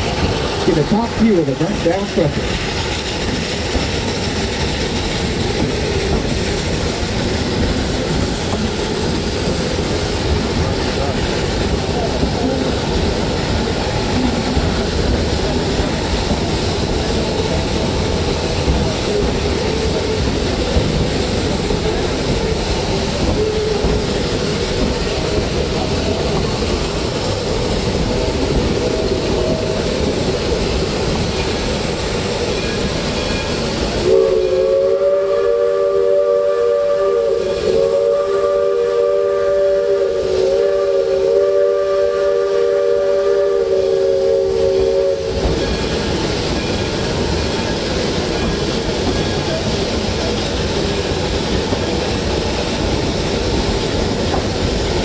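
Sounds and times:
train running: 0.0 - 55.0
chime steam whistle blast: 34.0 - 46.1.

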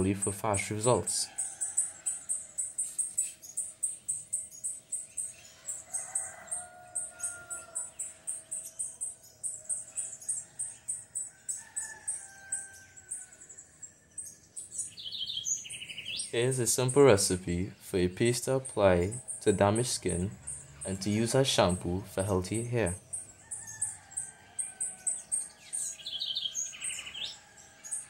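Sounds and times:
birds chirping rapidly: 0.0 - 28.0
drawn-out bird calls: 14.6 - 28.0.

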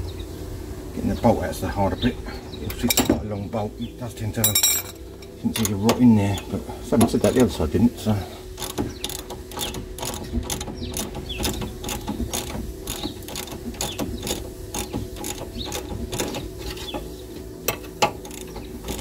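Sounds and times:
ratchet spanner clicking: 8.6 - 17.1, 17.7 - 19.0.

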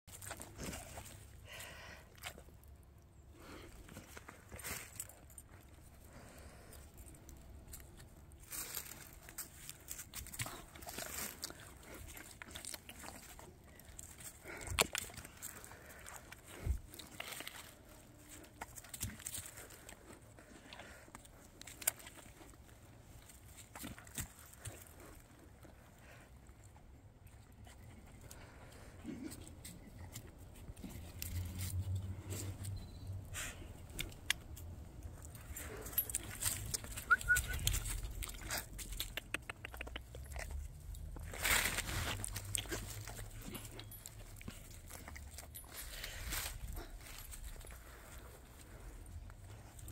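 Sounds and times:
rustling in dry leaves: 6.1 - 25.2, 41.1 - 49.9
dogs rustling through dry leaves: 8.4 - 12.0, 41.1 - 45.0.

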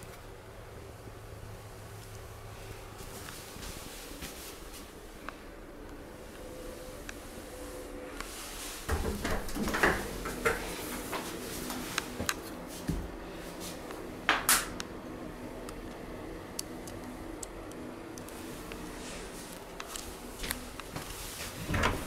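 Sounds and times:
faint steady hum: 0.0 - 22.0.

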